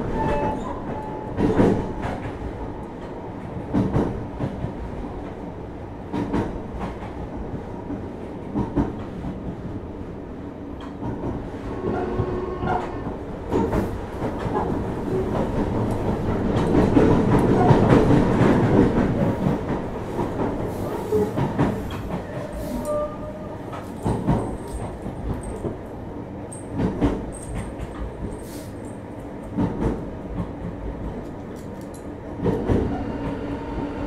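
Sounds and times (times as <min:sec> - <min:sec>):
train running rumble: 0:00.0 - 0:34.0
train wheel clicks: 0:23.7 - 0:25.9, 0:26.5 - 0:33.4.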